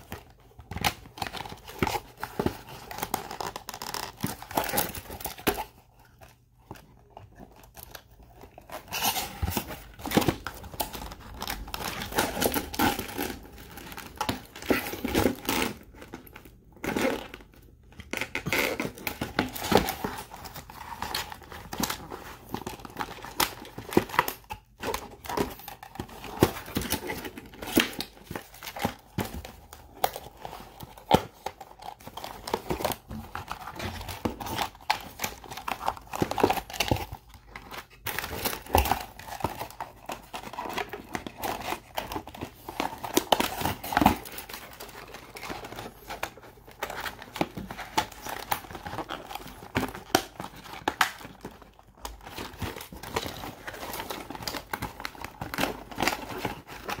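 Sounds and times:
plastic wrap and paper crinkling: 0.0 - 57.0.

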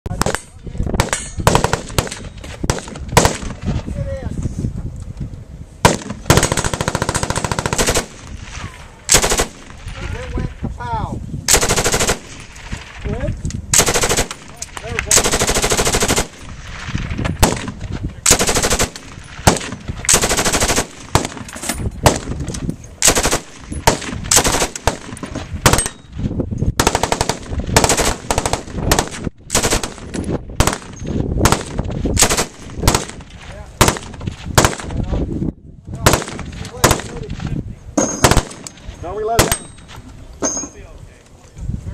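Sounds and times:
machine gun firing bursts: 1.0 - 3.6, 5.9 - 8.3, 9.1 - 9.8, 11.5 - 12.9, 13.8 - 16.6, 17.4 - 21.4, 23.0 - 26.0, 26.8 - 34.9, 36.0 - 37.1, 38.2 - 38.7.

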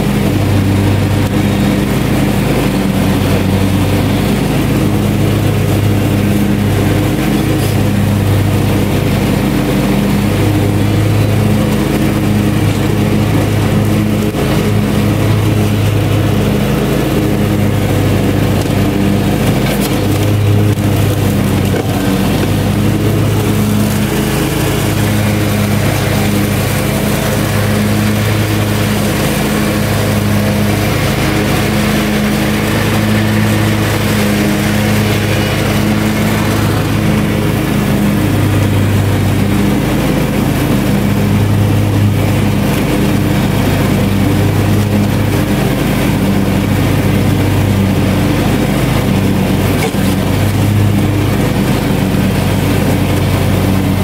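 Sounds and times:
ride-on mower engine drone: 0.0 - 54.0.

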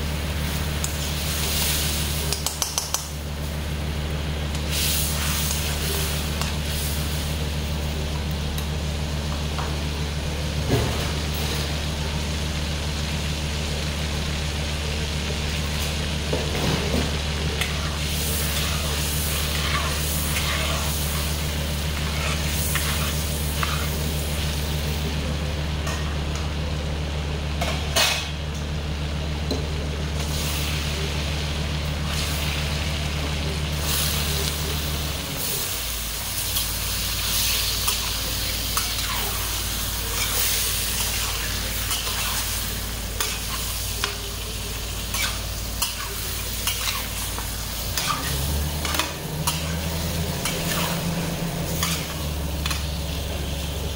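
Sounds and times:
oil sizzling in a wok: 0.0 - 53.9.

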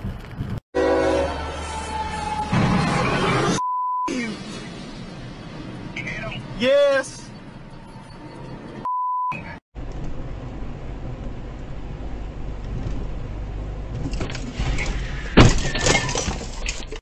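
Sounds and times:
car road noise: 1.3 - 16.5
car crash bang: 14.5 - 16.4.

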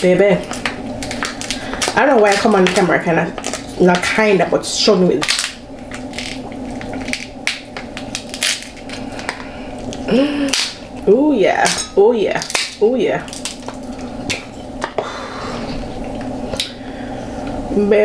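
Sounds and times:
crab shells cracking and squishing: 0.4 - 3.8, 5.2 - 11.0, 12.4 - 14.5
person humming: 10.0 - 10.7.

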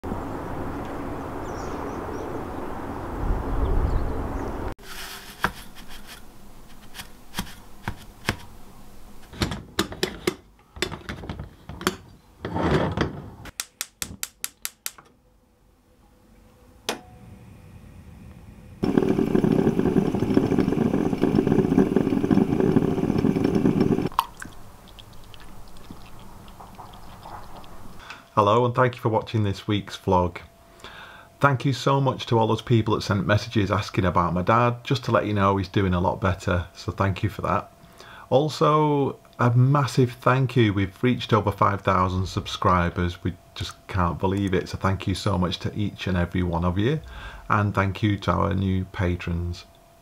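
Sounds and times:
moka pot hissing sputter: 18.8 - 24.1.

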